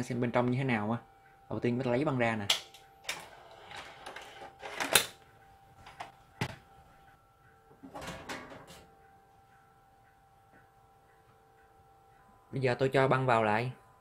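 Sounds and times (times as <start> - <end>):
faint steady hum: 0.0 - 14.0
metal cover rattling: 7.8 - 8.8.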